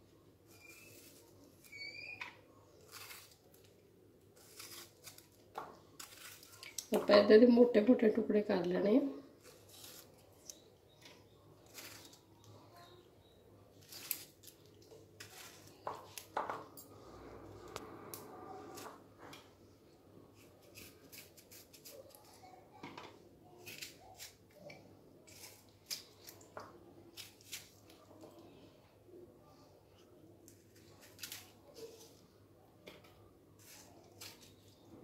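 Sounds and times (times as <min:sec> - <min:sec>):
knife cutting tomatoes: 0:04.4 - 0:07.0, 0:20.3 - 0:22.4, 0:23.6 - 0:26.5.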